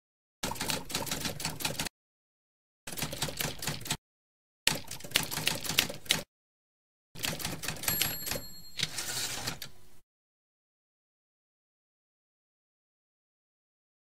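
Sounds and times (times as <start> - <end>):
rapid keyboard key clicks: 2.9 - 4.0, 4.7 - 6.3, 7.2 - 8.4.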